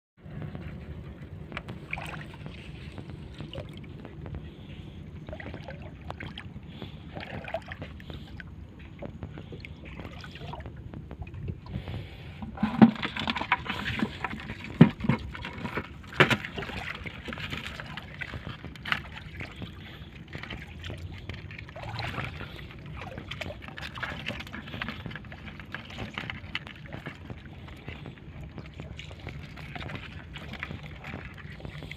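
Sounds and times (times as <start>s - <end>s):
water lapping against a boat: 0.2s - 31.9s.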